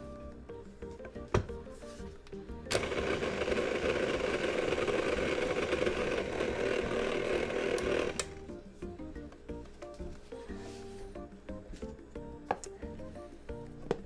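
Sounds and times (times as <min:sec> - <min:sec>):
stand mixer motor running: 0:02.7 - 0:08.4.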